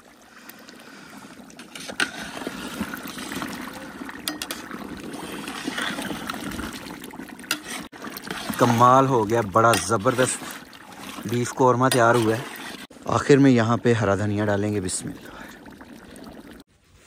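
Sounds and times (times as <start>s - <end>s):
stew bubbling in a pot: 0.0s - 16.7s
ladle stirring: 0.7s - 12.9s.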